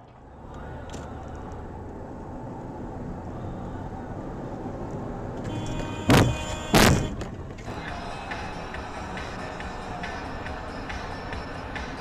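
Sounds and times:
car road and engine noise: 0:00.0 - 0:12.0
loud bang: 0:05.5 - 0:07.4.

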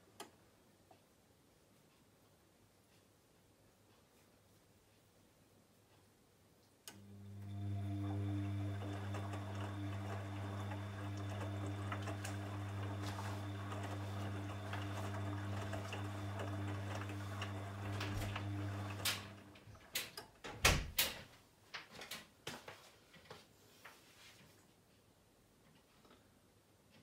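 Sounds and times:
washing machine mains hum: 0:06.8 - 0:21.3
washing machine clicks and knocks: 0:19.9 - 0:21.2.

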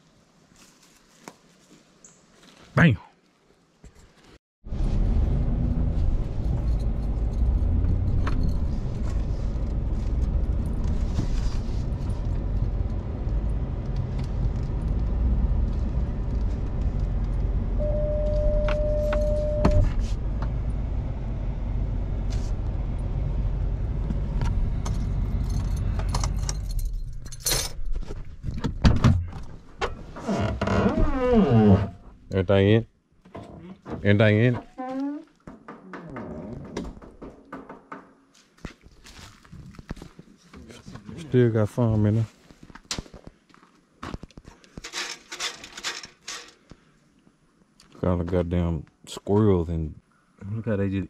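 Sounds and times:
truck engine and road rumble: 0:04.6 - 0:37.9
jingling: 0:06.4 - 0:09.3
steady beep: 0:17.8 - 0:19.9.

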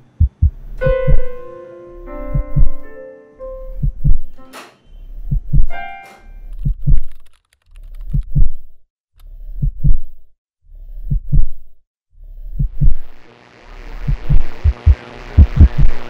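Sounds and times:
heartbeat thumps: 0:00.0 - 0:01.3, 0:02.3 - 0:02.8, 0:03.8 - 0:04.3, 0:05.2 - 0:05.7, 0:06.6 - 0:07.1, 0:08.1 - 0:08.6, 0:09.5 - 0:10.2, 0:10.9 - 0:11.7, 0:12.4 - 0:13.1, 0:14.0 - 0:16.0.

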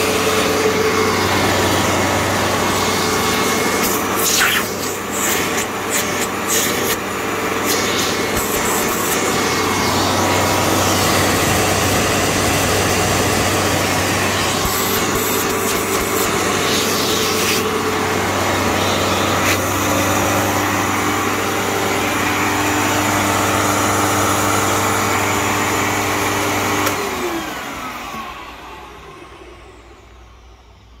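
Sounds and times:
motor winding down: 0:00.0 - 0:30.3
vacuum cleaner running: 0:00.0 - 0:31.0.

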